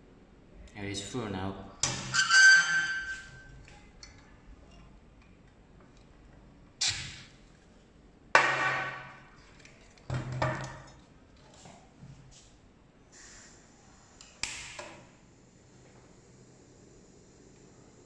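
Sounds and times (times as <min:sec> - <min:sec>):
gas hissing: 0:13.1 - 0:18.0.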